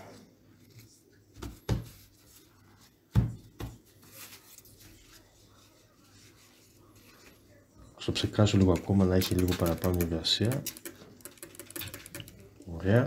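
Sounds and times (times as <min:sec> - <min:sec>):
paper towel rustling: 0:00.0 - 0:07.6.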